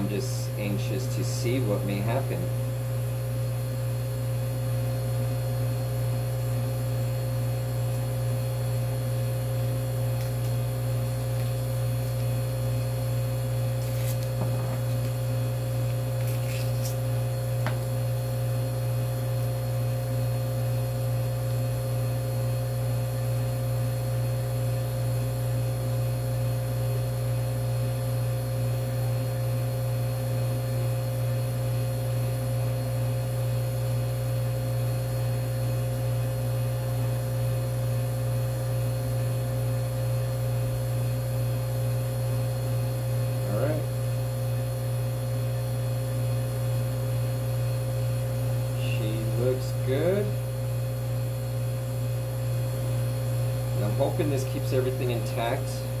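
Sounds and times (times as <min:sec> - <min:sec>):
freezer humming: 0:00.0 - 0:56.0.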